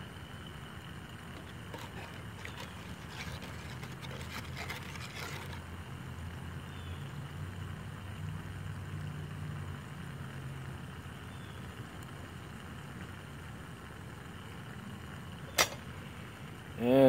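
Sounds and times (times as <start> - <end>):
plastic spoon stirring in steel cup: 1.3 - 5.6.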